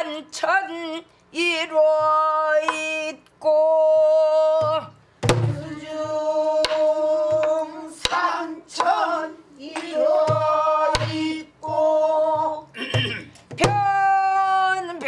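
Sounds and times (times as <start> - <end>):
low palm thumps on drum: 4.6 - 7.5, 10.2 - 13.9.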